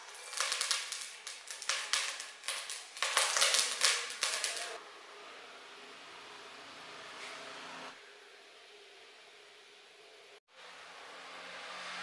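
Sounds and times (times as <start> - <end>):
oil crackling and sizzling in a pot: 0.0 - 4.8.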